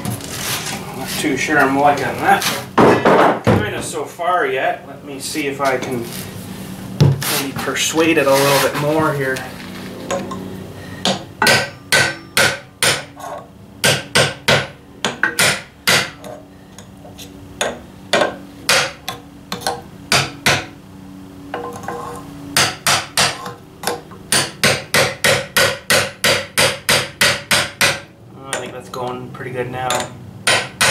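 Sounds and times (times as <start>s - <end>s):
low metallic ring: 10.1s - 12.8s.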